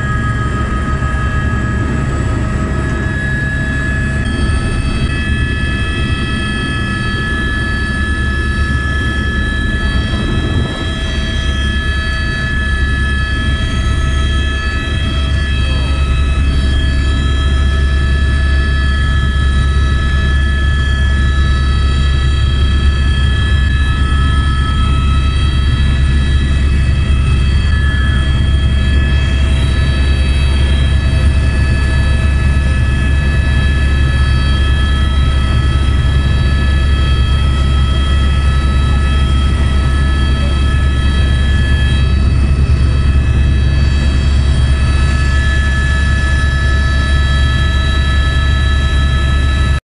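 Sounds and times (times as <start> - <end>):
helicopter rotor beat: 0.0 - 49.8
helicopter turbine whine: 0.0 - 49.8.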